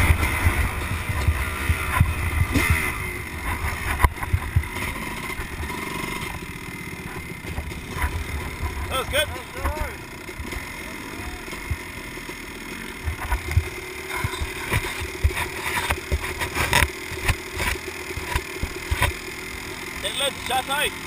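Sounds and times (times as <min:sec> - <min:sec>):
steady hum: 0:00.0 - 0:19.6.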